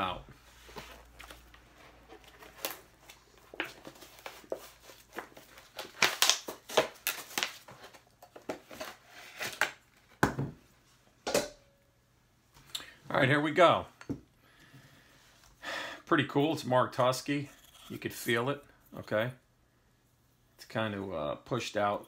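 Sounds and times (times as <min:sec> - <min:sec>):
plastic packaging crinkling and snapping: 0:01.0 - 0:09.9.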